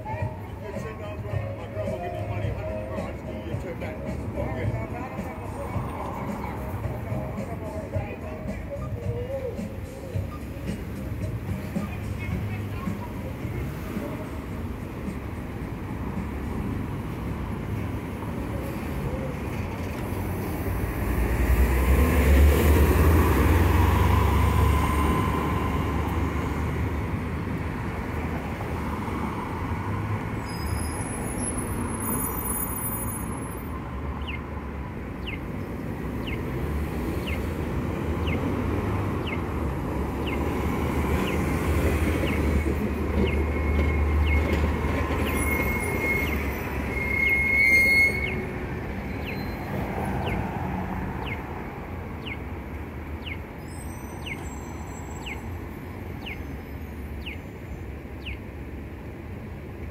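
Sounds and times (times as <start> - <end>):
cars and bus passing: 0.0 - 59.9
pedestrian signal chirp tone: 7.8 - 10.8, 30.4 - 34.5, 35.2 - 35.5, 38.2 - 50.6, 53.2 - 58.5
high squeal: 30.4 - 33.6, 42.3 - 50.4, 53.6 - 57.6.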